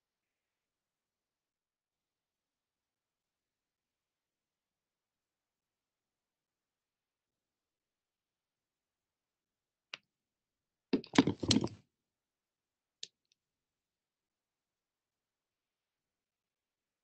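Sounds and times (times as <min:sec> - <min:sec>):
sharp clicks and knocks: 0:11.0 - 0:11.8.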